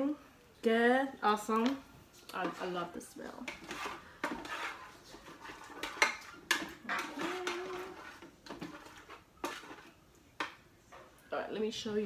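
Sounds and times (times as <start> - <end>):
utensil scraping metal pot: 2.3 - 10.6.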